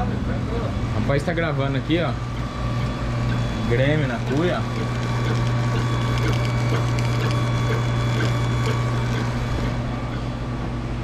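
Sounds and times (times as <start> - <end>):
machine hum: 0.0 - 11.0.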